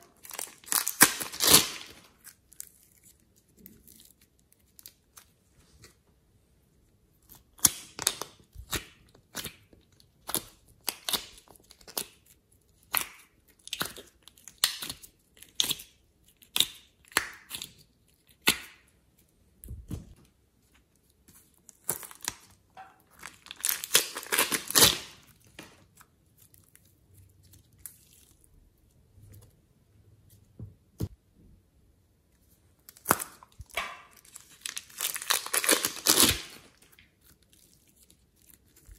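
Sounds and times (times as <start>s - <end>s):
hands squishing clay and slime: 0.0s - 31.4s, 32.2s - 38.9s.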